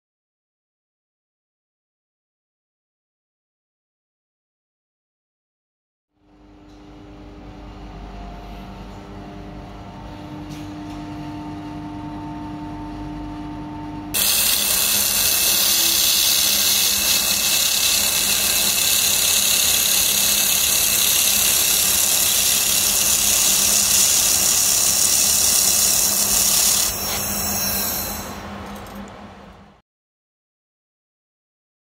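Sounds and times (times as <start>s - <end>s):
machine cabinet humming: 6.3s - 29.8s
laser welding hiss: 14.2s - 28.5s.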